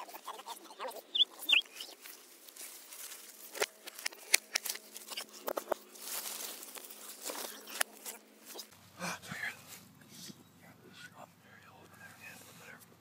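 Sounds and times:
leaves rustling: 0.1 - 8.9
high bird chirps: 0.8 - 2.0
clicks from hands in plants: 1.8 - 8.7.

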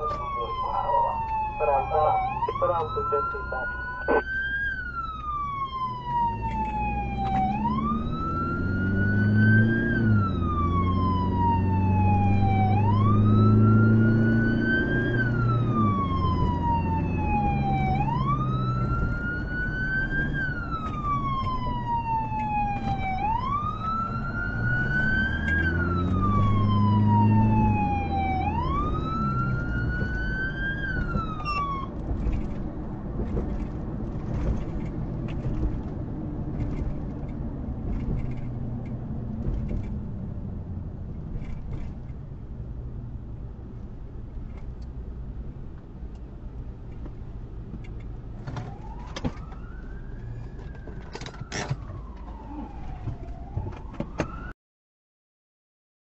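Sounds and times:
siren wailing: 0.0 - 32.0, 48.6 - 54.5
engine and road noise: 0.0 - 54.6.

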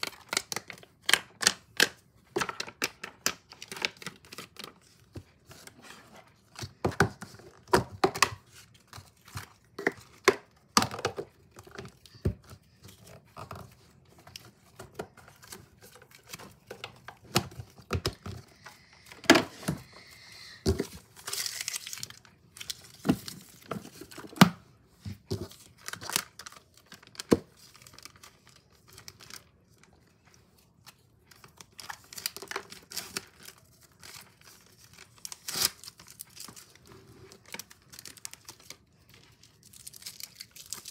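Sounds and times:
packaging tearing and crinkling: 21.1 - 24.1, 31.4 - 40.9.

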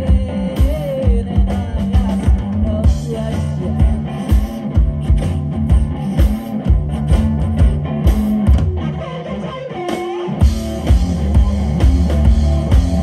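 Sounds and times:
rock music with guitar and drums: 0.0 - 13.0.

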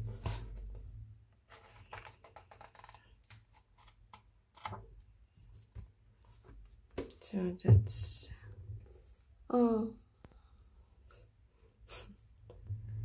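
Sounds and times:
book pages flipping: 1.4 - 7.2.

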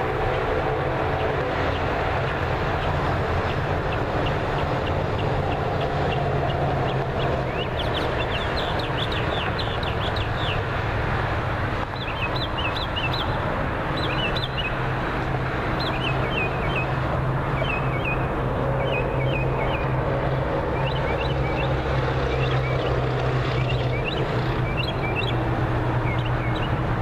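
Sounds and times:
highway traffic rushing: 0.0 - 27.0
bird chirping: 3.9 - 10.6, 11.9 - 13.4, 14.0 - 14.8, 15.8 - 16.9, 17.5 - 19.9, 20.8 - 25.4, 26.0 - 26.8.

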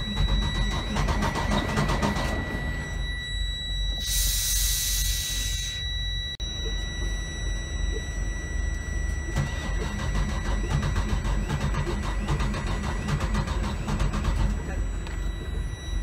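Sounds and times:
high electronic warning tone: 0.0 - 16.0
loud hiss: 4.0 - 5.8.

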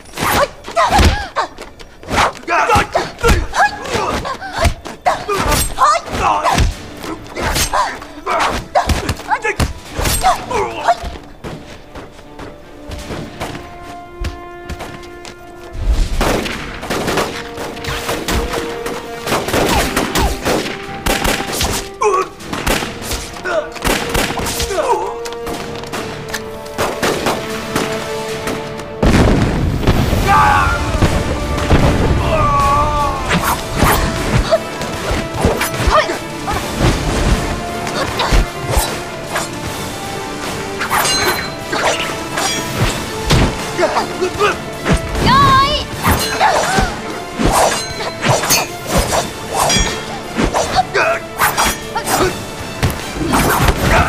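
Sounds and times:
dramatic background music: 0.0 - 54.0
gunshots: 23.8 - 24.6.

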